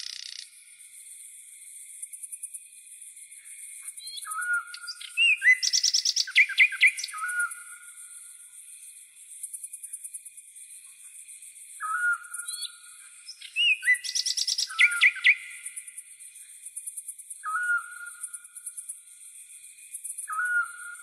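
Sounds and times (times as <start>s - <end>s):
high insect trill: 0.0s - 21.0s
bird chirping and whistling: 4.2s - 7.5s, 11.8s - 12.7s, 13.4s - 15.4s, 17.4s - 18.0s, 20.3s - 21.0s.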